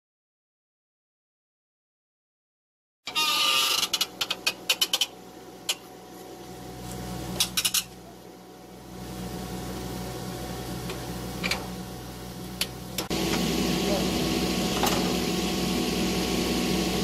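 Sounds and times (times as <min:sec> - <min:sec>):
pipe puller humming: 0:08.8 - 0:17.0.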